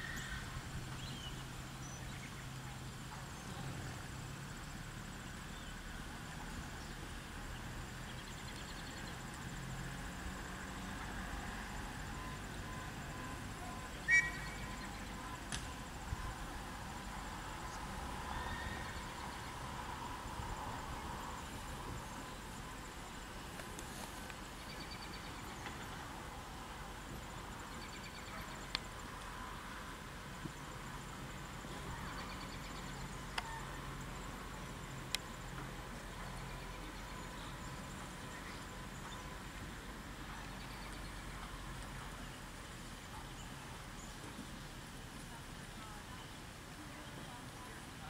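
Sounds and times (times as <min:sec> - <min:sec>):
faint high bird chirps: 0:12.2 - 0:15.4.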